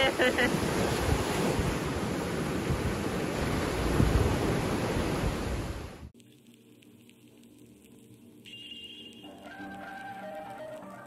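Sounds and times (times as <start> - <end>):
waves breaking on a beach: 0.0 - 6.1
wind rumble on microphone: 0.0 - 6.1.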